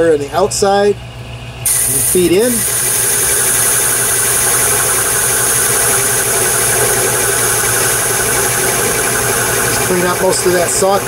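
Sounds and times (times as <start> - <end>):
lathe tool cutting steel: 1.7 - 11.0
metal lathe humming: 1.7 - 11.0.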